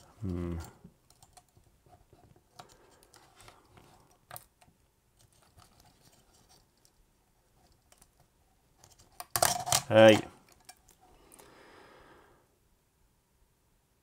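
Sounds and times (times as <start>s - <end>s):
fingers clicking and rustling on camera: 7.6s - 11.0s.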